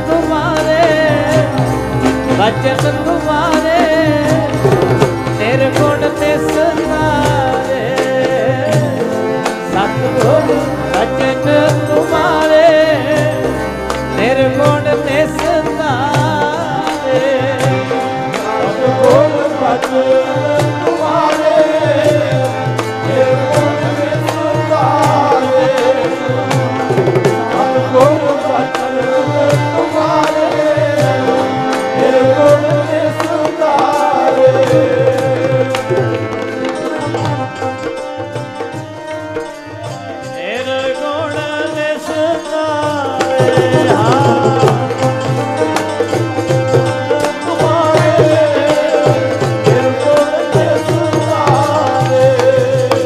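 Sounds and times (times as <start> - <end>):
person singing wavering melody: 0.0 - 22.4
hand drum rhythm: 0.0 - 38.5, 42.6 - 53.0.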